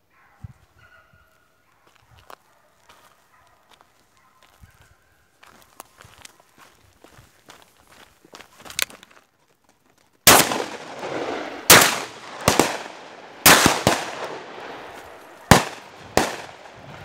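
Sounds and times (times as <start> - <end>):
faint distant shots: 10.3 - 17.0
shotgun shots echoing: 10.3 - 17.0.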